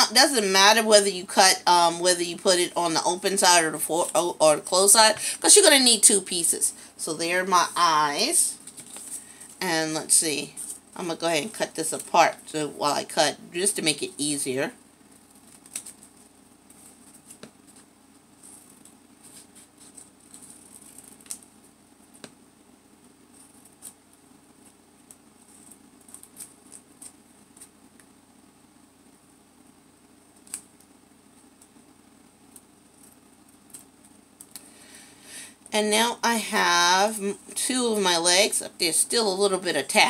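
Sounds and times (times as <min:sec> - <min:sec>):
faint steady hum: 0:00.0 - 0:40.0
paper rustling: 0:08.6 - 0:09.5, 0:15.1 - 0:21.5.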